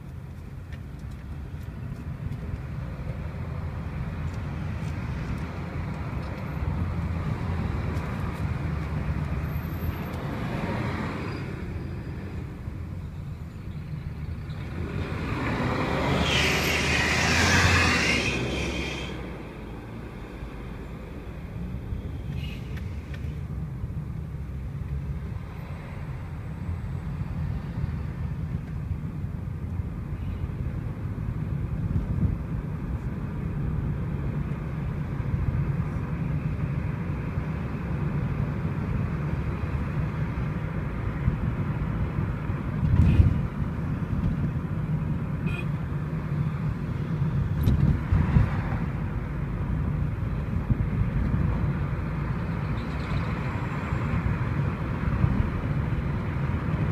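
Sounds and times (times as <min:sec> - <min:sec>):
city traffic rumble: 0:00.0 - 0:56.9
vehicle passing close by: 0:14.6 - 0:21.8.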